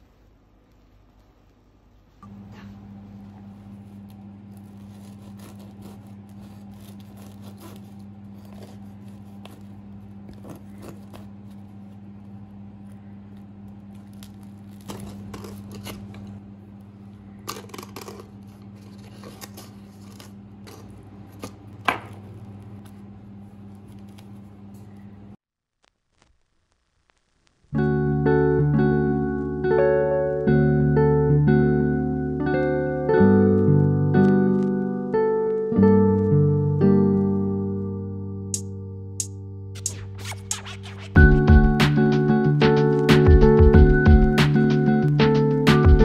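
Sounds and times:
steady low hum: 0:00.0 - 0:25.4
knife cutting bread crust: 0:03.7 - 0:11.9, 0:13.9 - 0:16.4, 0:17.5 - 0:22.3
knife scraping butter: 0:04.0 - 0:11.7, 0:17.5 - 0:21.6.

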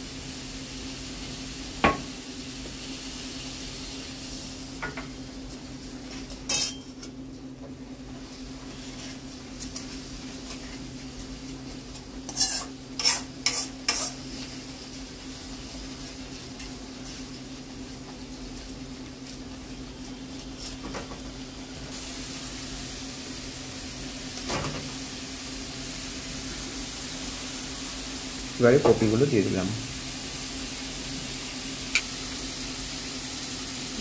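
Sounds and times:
low sizzle: 0:00.0 - 0:34.0
spoon clanking against pan: 0:06.5 - 0:06.9
spoon scraping metal pan: 0:12.3 - 0:14.2.

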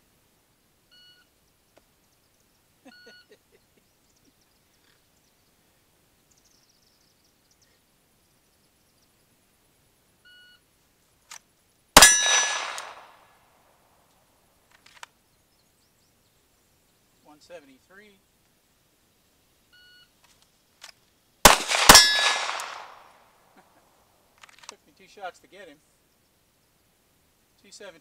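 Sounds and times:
steel target ringing: 0:12.0 - 0:13.0, 0:21.7 - 0:22.9
pistol shot: 0:12.0 - 0:13.2, 0:21.4 - 0:23.2.

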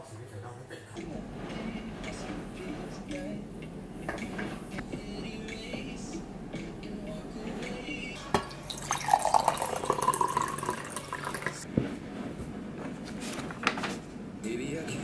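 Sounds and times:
water pouring into glass: 0:08.4 - 0:11.6.

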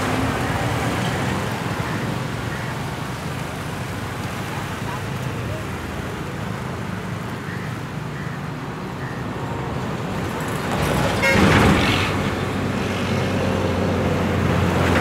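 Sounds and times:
truck horn toot: 0:11.2 - 0:11.6.

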